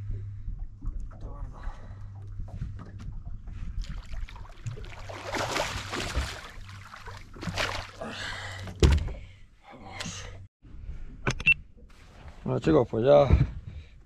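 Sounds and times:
handling noise on a boat: 0.0 - 9.3
water splashing: 3.8 - 8.1.

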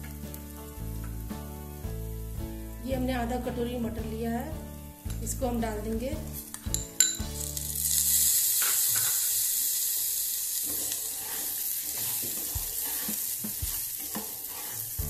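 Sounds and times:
rice and peas sizzling in oil: 0.0 - 15.0
metal clink: 6.7 - 7.2
spatula scraping knocks: 10.7 - 15.0.

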